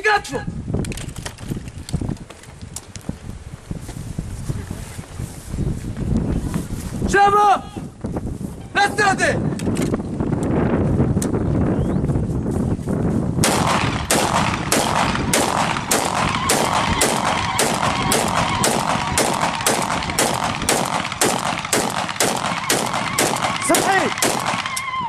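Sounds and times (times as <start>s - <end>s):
rifle shots: 13.4s - 24.9s.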